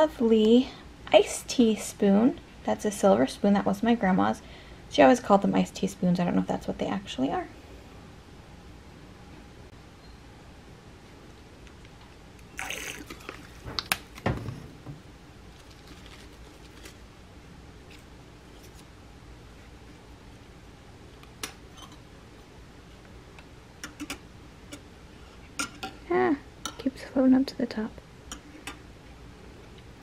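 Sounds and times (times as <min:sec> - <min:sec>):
squeeze bottle squish: 0:12.5 - 0:14.2.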